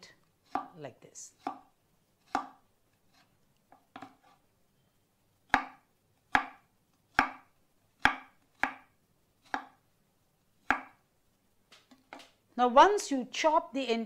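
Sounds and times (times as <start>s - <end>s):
knife chopping on wooden board: 0.4s - 0.8s, 1.4s - 1.6s, 2.2s - 2.6s, 5.5s - 9.8s, 10.6s - 11.0s.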